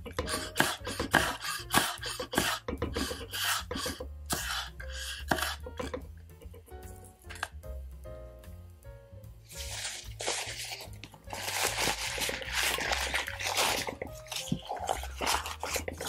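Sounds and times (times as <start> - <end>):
soft background music: 0.0 - 16.0
knife slicing onion on board: 0.2 - 6.0.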